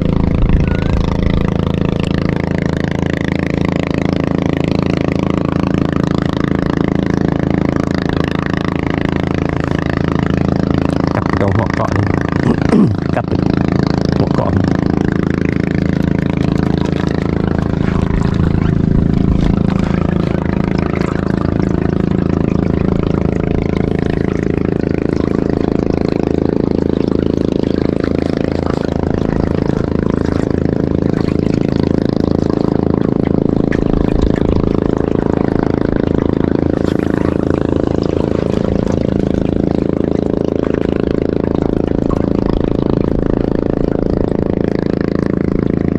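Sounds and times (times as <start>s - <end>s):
boat motor running: 0.0s - 45.9s.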